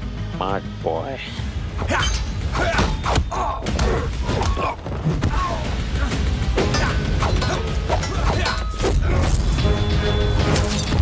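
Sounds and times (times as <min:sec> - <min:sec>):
film background score: 0:00.0 - 0:11.0.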